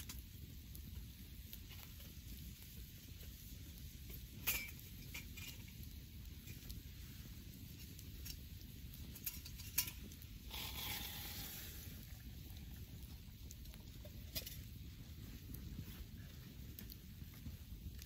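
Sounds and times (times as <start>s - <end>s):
campfire crackling and popping: 0.0s - 18.0s
brief hiss: 10.5s - 12.2s.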